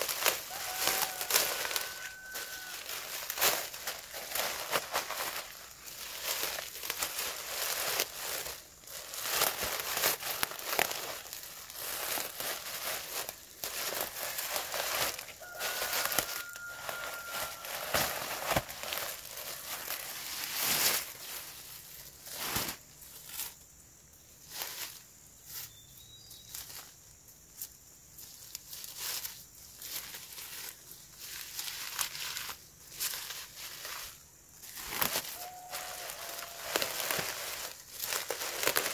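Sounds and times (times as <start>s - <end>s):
plastic bag crinkling: 0.0s - 22.8s, 34.7s - 38.9s
leaves rustling: 0.0s - 38.9s.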